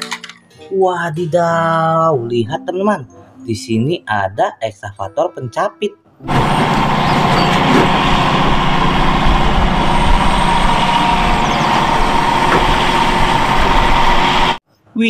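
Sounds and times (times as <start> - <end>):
constant engine whine: 6.2 - 14.6
excavator diesel engine rumbling: 6.2 - 14.6.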